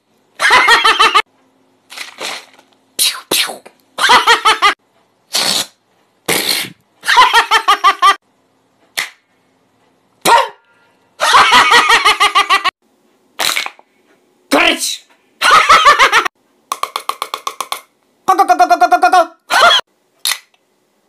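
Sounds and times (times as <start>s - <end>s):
man making vocal imitation noises: 10.2s - 10.6s, 18.3s - 19.8s.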